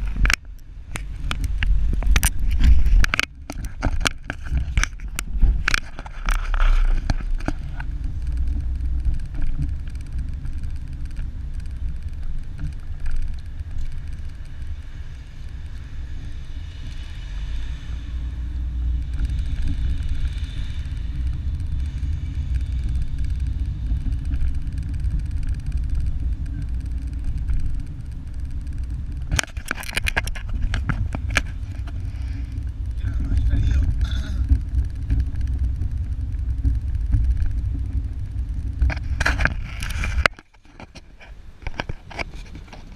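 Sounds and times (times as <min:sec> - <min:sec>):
car engine and tyres rumbling: 0:00.0 - 0:42.9.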